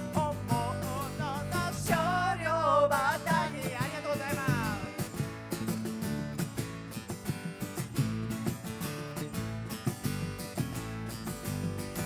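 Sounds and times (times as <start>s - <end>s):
wordless vocal: 0.0s - 5.4s
drums: 0.0s - 12.0s
electric bass: 0.0s - 12.0s
strummed acoustic guitar: 0.0s - 12.0s.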